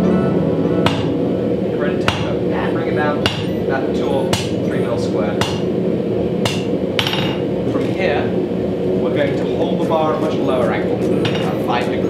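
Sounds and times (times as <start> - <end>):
steady low hum: 0.0 - 12.0
hammer striking steel on anvil: 0.8 - 1.2, 2.0 - 2.3, 3.2 - 3.6, 4.3 - 4.6, 5.4 - 5.7, 6.4 - 7.4.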